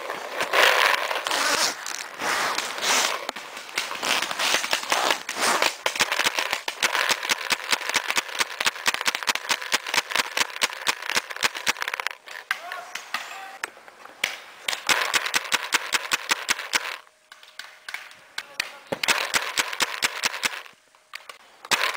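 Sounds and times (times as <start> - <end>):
irregular noise: 0.0 - 21.9
paintball marker firing pops: 14.2 - 21.9.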